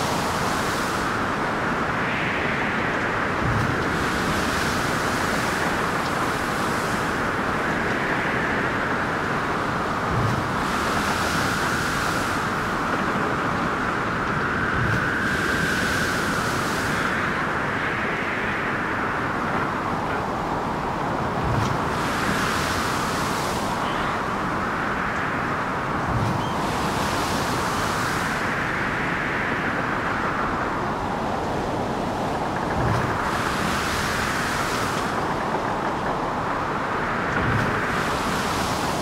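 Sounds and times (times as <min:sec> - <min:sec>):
waves surging and hissing: 0:00.0 - 0:39.0
wind: 0:00.0 - 0:39.0.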